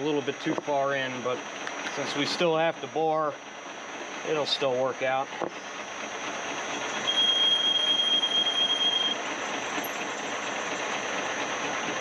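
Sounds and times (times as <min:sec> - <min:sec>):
thin high squeal: 0:07.0 - 0:09.2.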